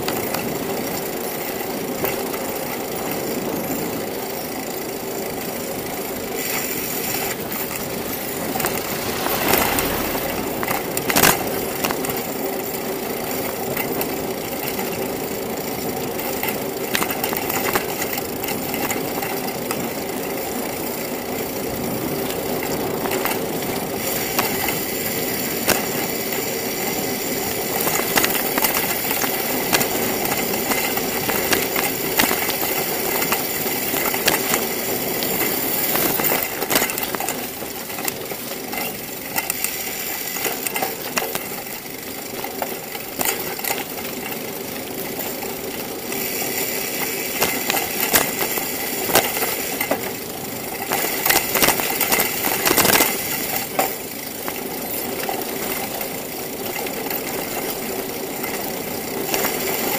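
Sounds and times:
bicycle rattling over bumps: 0:00.0 - 0:59.9
tyre and wind noise: 0:05.4 - 0:14.2.

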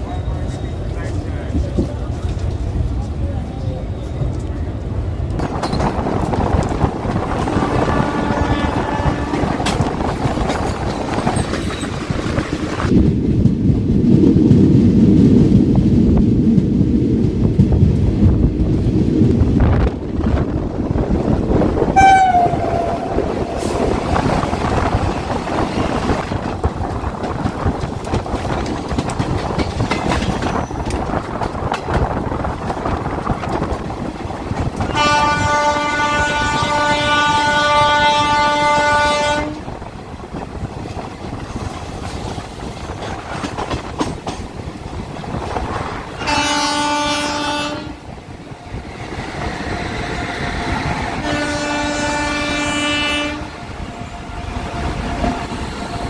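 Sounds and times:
train rumbling at speed: 0:00.0 - 0:56.0
wheels clattering over track: 0:05.4 - 0:07.9, 0:23.5 - 0:35.0
locomotive horn blasts: 0:07.6 - 0:09.6, 0:22.0 - 0:23.8, 0:34.9 - 0:39.7, 0:46.2 - 0:48.0, 0:51.2 - 0:56.0.

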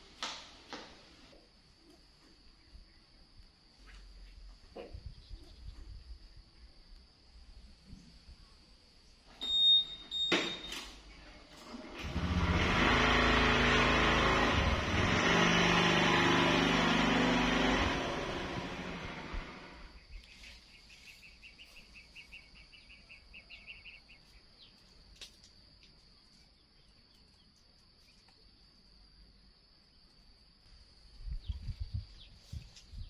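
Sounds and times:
small motorbike engine: 0:11.5 - 0:19.9.

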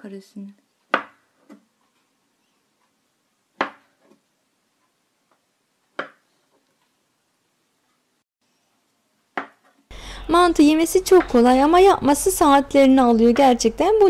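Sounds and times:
knife chopping on tabletop: 0:00.9 - 0:01.6, 0:03.6 - 0:03.9, 0:06.0 - 0:06.2.

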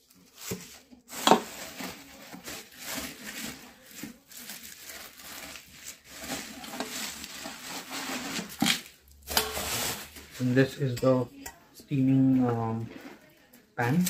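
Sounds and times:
bubble wrap crinkling: 0:00.0 - 0:10.9.

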